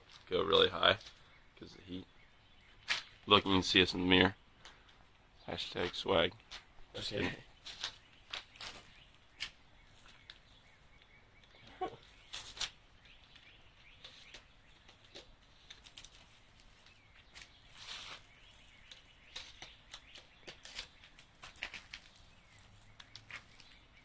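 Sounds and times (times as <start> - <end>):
small fire crackling: 4.4 - 24.0
sharp snaps and clicks: 23.0 - 23.8.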